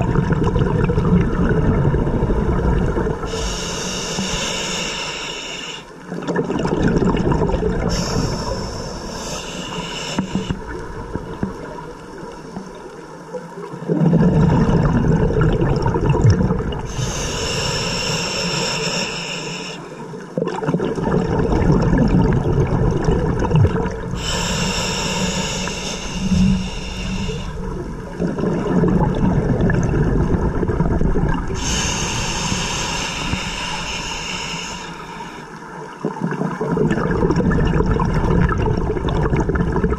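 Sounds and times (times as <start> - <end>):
gurgling exhaled bubbles: 0.0 - 4.9, 6.1 - 18.6, 20.3 - 39.9
regulator inhalation hiss: 3.3 - 6.0, 7.9 - 10.8, 16.9 - 20.0, 24.2 - 27.8, 31.6 - 35.6.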